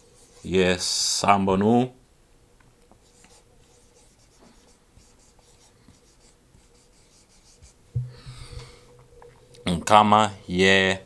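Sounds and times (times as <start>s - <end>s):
marker writing on whiteboard: 0.0s - 0.6s, 2.9s - 7.9s.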